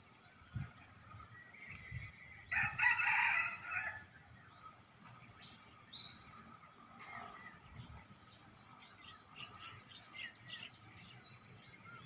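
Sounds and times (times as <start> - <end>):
high-pitched background hiss: 0.0 - 12.0
rooster crowing: 2.5 - 4.1.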